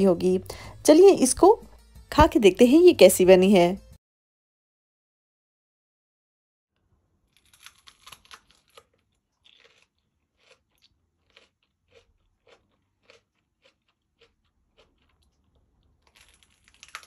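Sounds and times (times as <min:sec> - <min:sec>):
crunchy chewing: 0:07.3 - 0:17.0.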